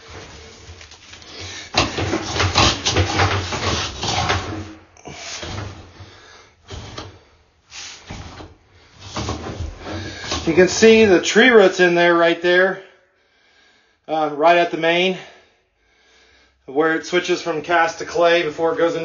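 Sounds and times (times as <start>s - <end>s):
cable rattling and scraping in drain: 0.0s - 7.4s, 8.0s - 11.1s.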